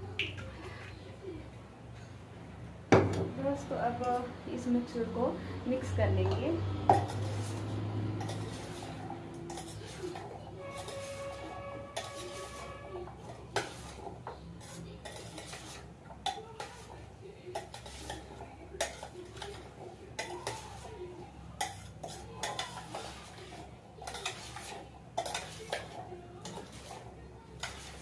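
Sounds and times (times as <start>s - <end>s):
metal spoon scraping a pot: 6.2s - 28.0s.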